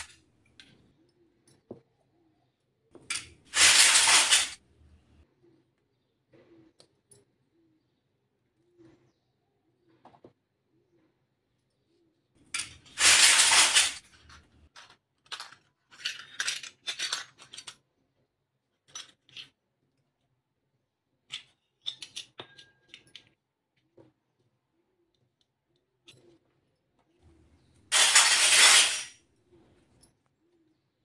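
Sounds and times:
toy plates clinking: 3.0 - 4.6, 12.4 - 17.8, 21.3 - 23.4, 27.8 - 29.2.

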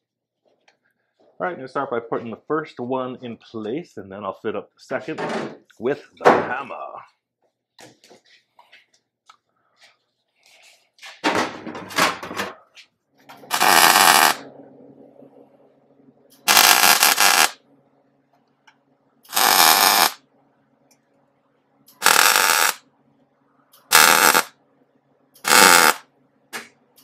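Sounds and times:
low steady hum: 12.4 - 16.6, 17.6 - 19.3, 20.2 - 22.0
welder crackling bursts: 13.5 - 14.4, 16.4 - 17.6, 19.3 - 20.2, 21.9 - 22.8, 23.8 - 24.5, 25.4 - 26.0.

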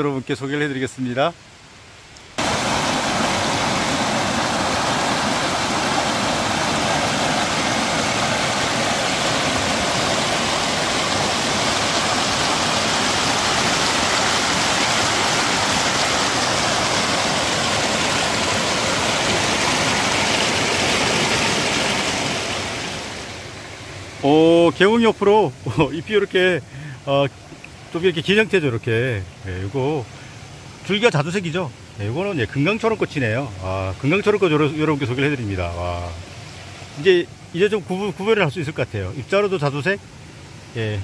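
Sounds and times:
mountain stream rushing: 0.0 - 41.0.

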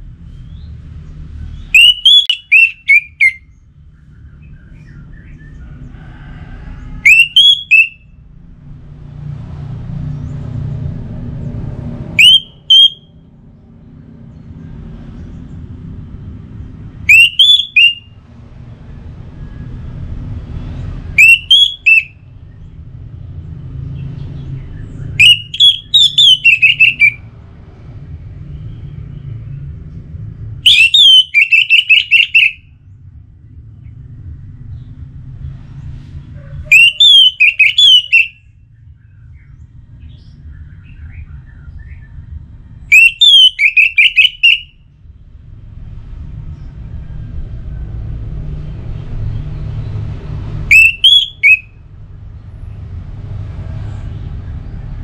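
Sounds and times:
low rumble: 8.1 - 17.1, 26.6 - 30.7, 32.6 - 36.7, 38.4 - 42.9, 44.8 - 50.7, 51.7 - 55.0
thrush singing: 25.0 - 27.3, 50.6 - 51.7.

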